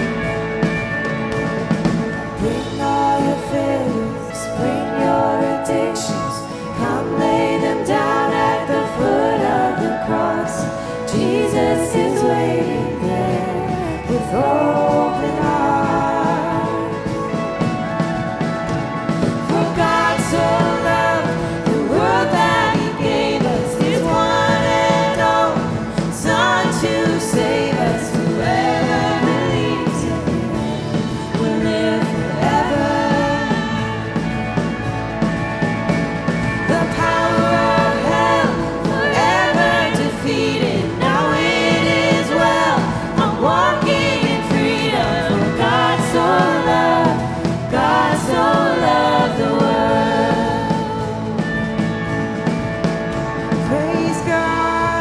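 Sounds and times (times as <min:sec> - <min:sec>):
acoustic guitar: 0:00.0 - 0:55.0
bass guitar: 0:00.0 - 0:55.0
drums: 0:00.0 - 0:55.0
keyboard: 0:00.0 - 0:55.0
women singing: 0:01.4 - 0:55.0.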